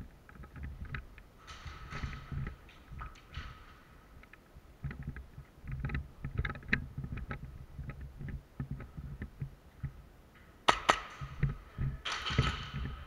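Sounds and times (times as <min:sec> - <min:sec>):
sharp cracks: 0:10.6 - 0:13.0.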